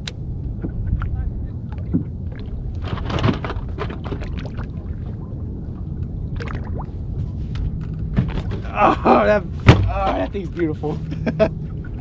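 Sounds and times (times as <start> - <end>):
water lapping against boat hull: 0.0 - 8.8
low rumble: 0.0 - 12.0.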